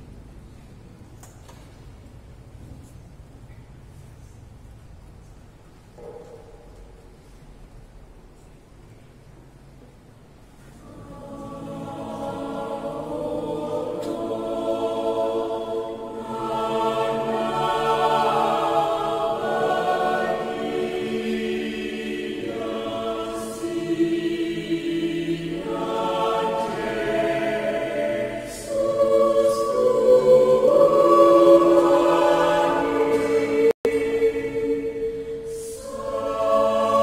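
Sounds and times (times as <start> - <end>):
mixed choir singing: 10.8 - 37.0.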